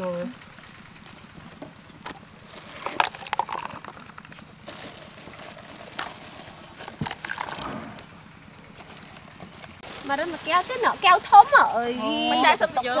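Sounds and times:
plastic cups clicking: 0:02.0 - 0:07.8.

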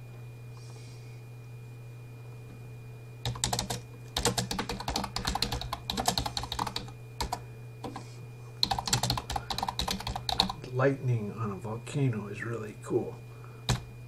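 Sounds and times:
typing on keyboard: 0:03.2 - 0:08.0, 0:08.6 - 0:10.6.

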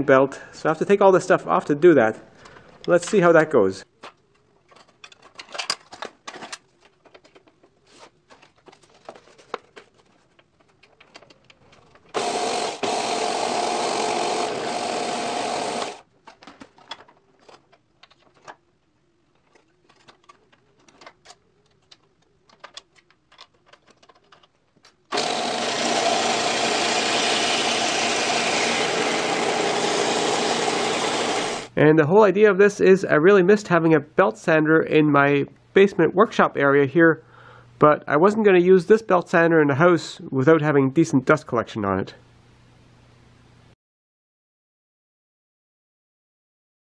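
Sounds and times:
belt sander running: 0:12.1 - 0:16.0, 0:25.1 - 0:31.8.

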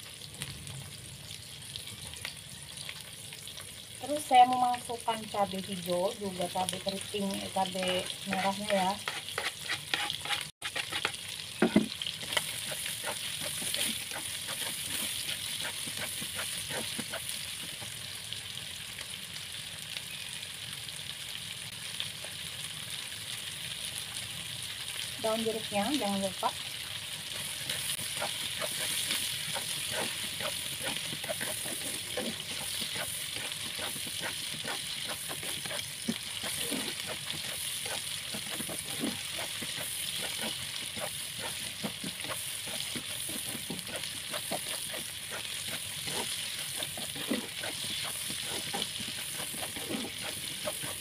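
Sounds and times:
food sizzling in hot oil: 0:00.0 - 0:51.0
spatula scraping a pan: 0:06.7 - 0:17.9, 0:27.2 - 0:51.0.

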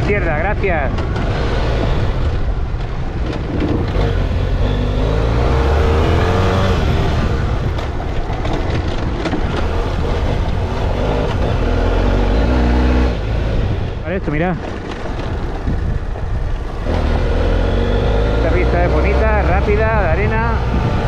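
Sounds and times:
motorcycle engine under throttle: 0:01.0 - 0:13.9.

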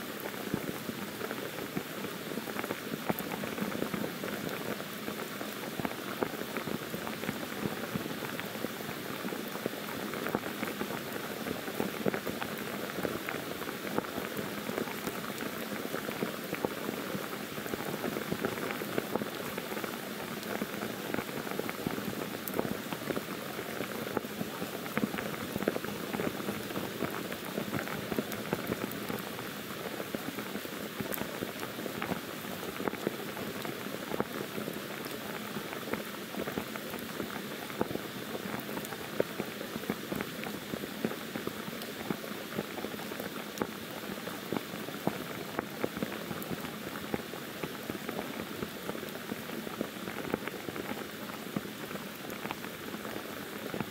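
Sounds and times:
heavy rain on foliage: 0:00.0 - 0:53.9.

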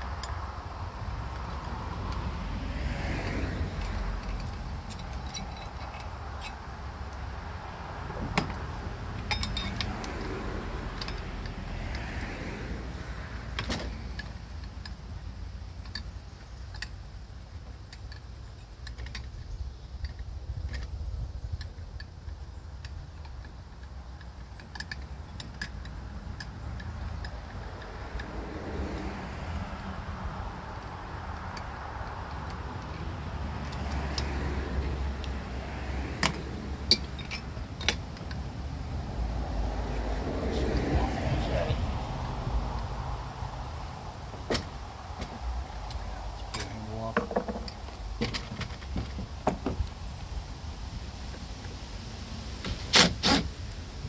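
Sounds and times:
metal tools clinking: 0:03.5 - 0:07.2, 0:08.2 - 0:11.6, 0:36.2 - 0:38.5
hand tools clicking: 0:08.3 - 0:12.1, 0:17.7 - 0:28.4, 0:36.2 - 0:38.5.

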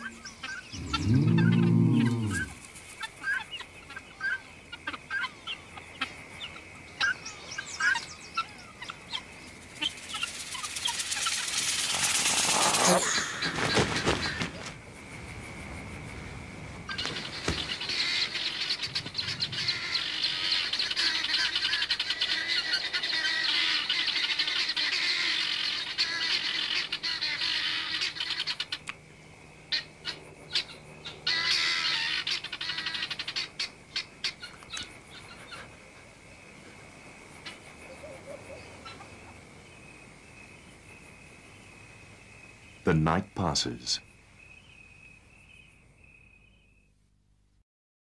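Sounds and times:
guineafowl alarm cackles: 0:00.0 - 0:14.7, 0:16.9 - 0:29.0, 0:29.7 - 0:35.8, 0:37.4 - 0:39.4.

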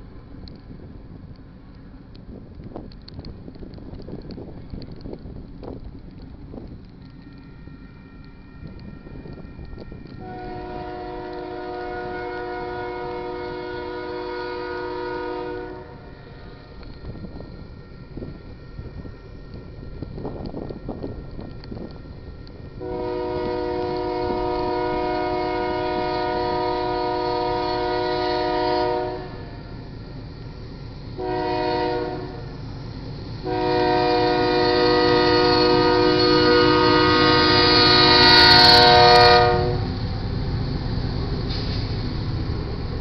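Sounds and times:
train rumble: 0:00.0 - 0:43.0
locomotive air horn blasts: 0:10.2 - 0:16.1, 0:22.8 - 0:29.7, 0:31.2 - 0:32.4, 0:33.4 - 0:39.9.

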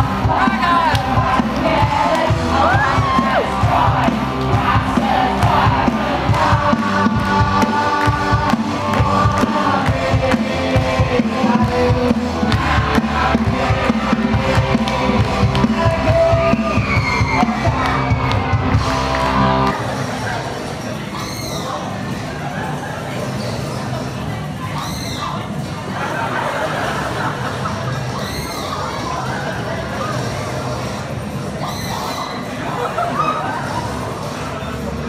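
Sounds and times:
crowd cheering: 0:00.0 - 0:20.0
show music with singing: 0:00.0 - 0:20.0
crowd clapping along: 0:03.8 - 0:11.0, 0:12.4 - 0:16.2, 0:17.4 - 0:19.8.

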